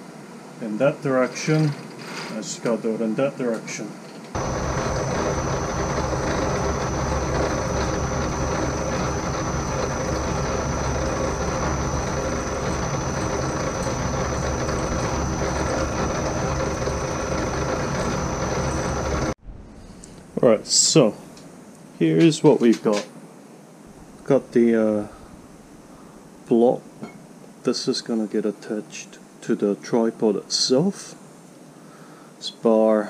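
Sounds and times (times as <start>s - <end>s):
milling machine drilling metal: 4.4s - 19.4s.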